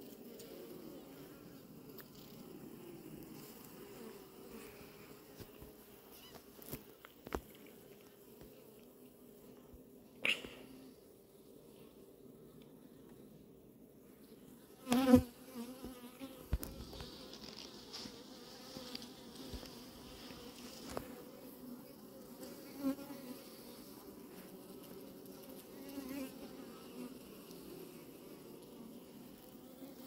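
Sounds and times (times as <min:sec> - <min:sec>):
bees buzzing: 0:14.8 - 0:30.0.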